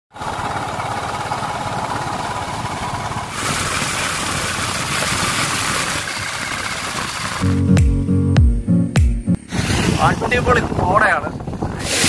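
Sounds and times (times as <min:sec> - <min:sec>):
wind and road noise: 0:00.1 - 0:07.6, 0:09.4 - 0:12.0
motorcycle engine running: 0:00.2 - 0:07.8.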